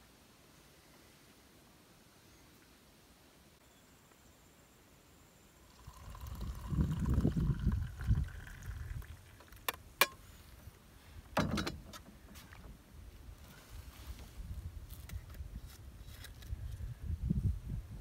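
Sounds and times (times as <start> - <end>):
liquid pouring into a mug: 5.7 - 9.7.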